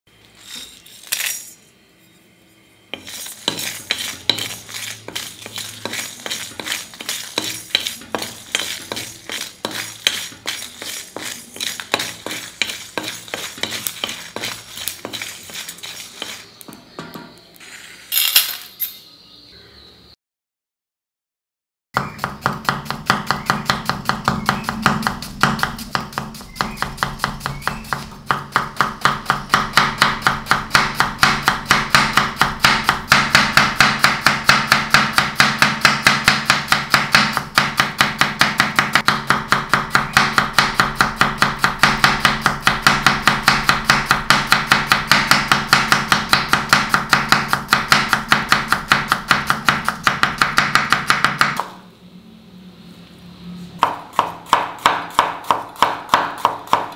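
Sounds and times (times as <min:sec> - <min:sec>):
knife chopping on cutting board: 0:03.0 - 0:16.5, 0:22.0 - 0:51.7, 0:53.8 - 0:56.9.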